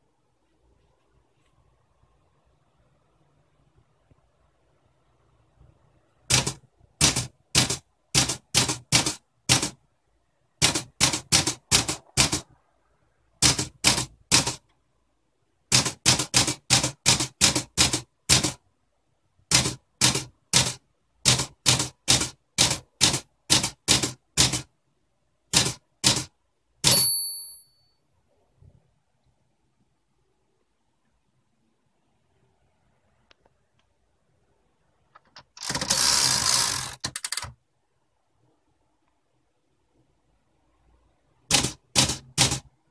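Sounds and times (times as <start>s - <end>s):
typewriter key strikes: 41.5s - 42.7s.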